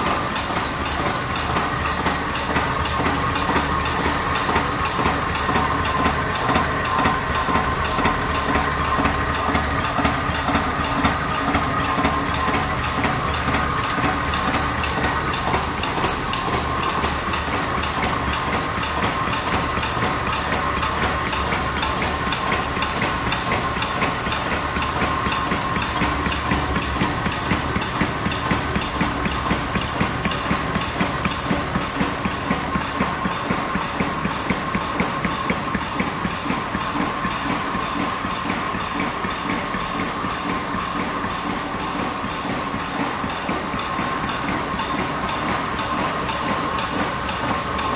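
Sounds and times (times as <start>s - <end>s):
printing press cycling: 0.0s - 47.9s.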